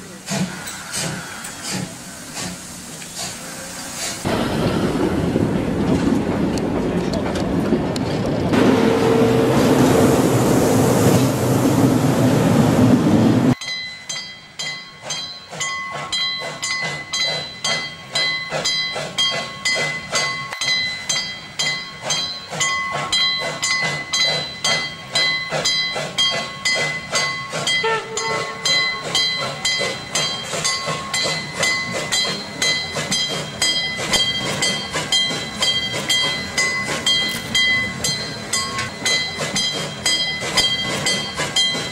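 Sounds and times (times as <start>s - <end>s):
steam locomotive exhaust puffing: 0.0s - 5.4s
railway coach wheels clattering: 0.0s - 41.9s.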